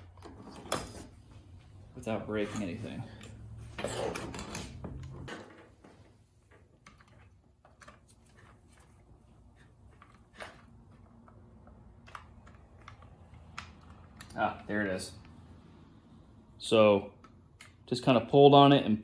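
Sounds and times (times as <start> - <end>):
plastic and metal parts clicking: 9.9 - 14.4.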